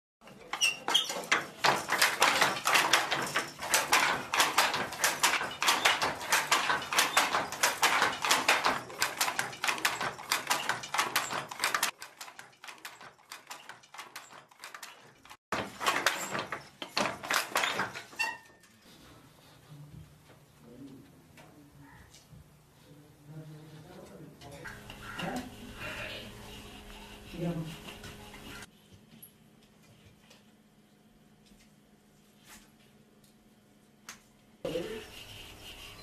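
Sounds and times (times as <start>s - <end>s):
wooden handloom clattering: 0.2s - 18.7s, 24.4s - 28.7s.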